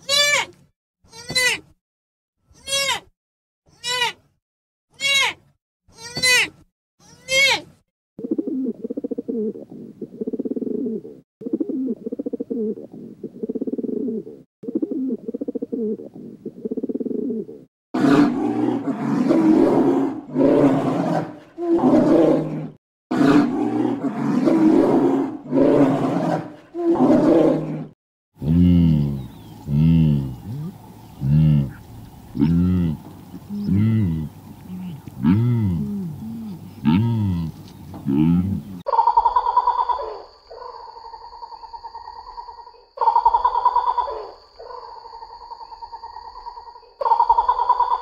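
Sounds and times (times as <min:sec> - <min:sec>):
farm animals calling: 0:28.4 - 0:40.7.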